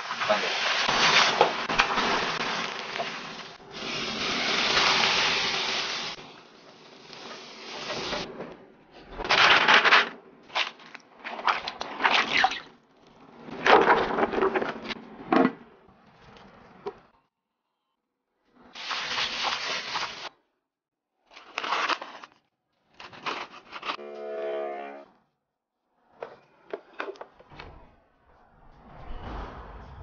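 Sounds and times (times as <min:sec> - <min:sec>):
hot oil sizzling: 0:00.0 - 0:08.2.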